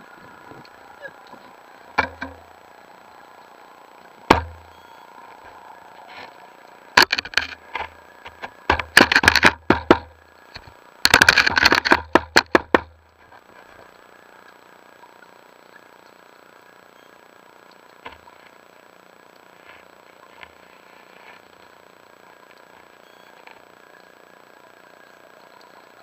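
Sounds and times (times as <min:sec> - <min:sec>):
underwater rapid clicks and knocks: 0:00.6 - 0:02.5, 0:04.2 - 0:04.7, 0:07.0 - 0:13.9.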